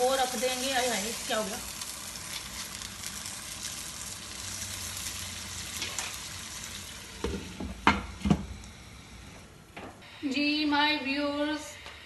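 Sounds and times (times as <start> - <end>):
food sizzling in a pan: 0.0 - 8.9.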